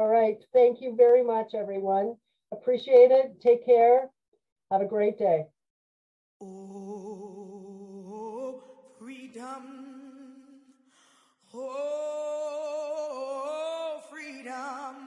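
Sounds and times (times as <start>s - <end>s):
person singing unaccompanied: 6.4s - 10.6s, 11.5s - 15.0s.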